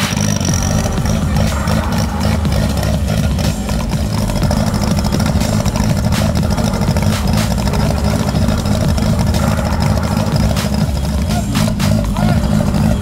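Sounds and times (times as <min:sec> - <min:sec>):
buggy engine idling: 0:00.0 - 0:13.0.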